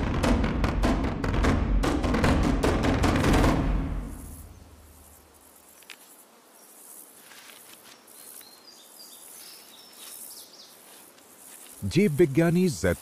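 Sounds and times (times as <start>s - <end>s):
drum-heavy soundtrack music: 0.0s - 4.4s
insects hissing: 3.9s - 13.0s.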